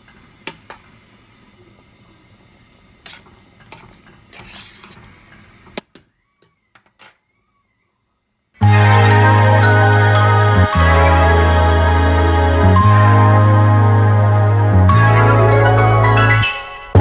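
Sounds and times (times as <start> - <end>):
tongs clattering against metal pot: 6.4 - 7.2
low steady hum: 7.2 - 17.0.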